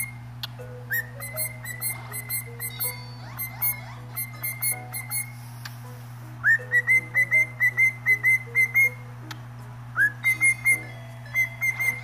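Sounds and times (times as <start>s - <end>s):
cockatiel whistling: 0.0s - 0.2s, 0.9s - 5.4s, 6.4s - 9.0s, 10.0s - 12.0s.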